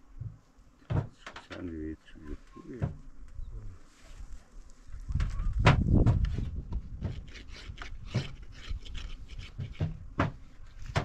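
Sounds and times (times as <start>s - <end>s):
wood scraping and knocking: 0.2s - 1.7s, 5.1s - 11.0s.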